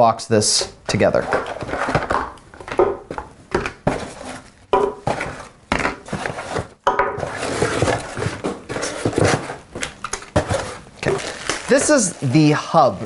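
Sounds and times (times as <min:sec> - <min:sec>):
cardboard scraping and rustling: 0:03.8 - 0:09.6, 0:10.3 - 0:13.0.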